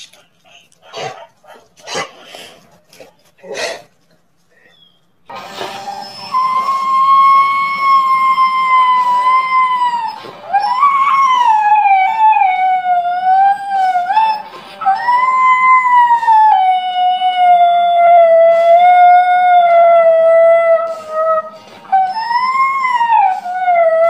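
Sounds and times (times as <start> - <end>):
dog howling: 5.6 - 24.0.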